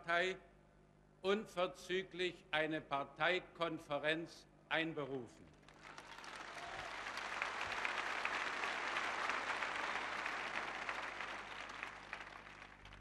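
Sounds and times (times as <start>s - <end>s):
crowd applauding: 5.7s - 13.0s.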